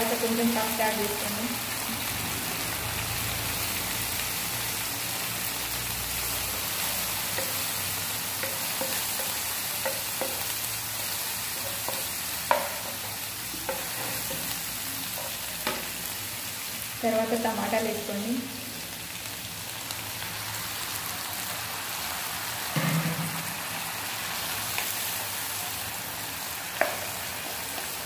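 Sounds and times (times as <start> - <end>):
onions sizzling in oil: 0.0 - 28.0
sharp knocks: 22.8 - 23.5.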